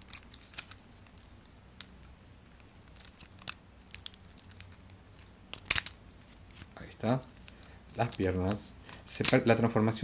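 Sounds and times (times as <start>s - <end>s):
light handling of plastic toy: 0.0s - 9.5s
plastic toy parts clicking: 5.5s - 6.0s.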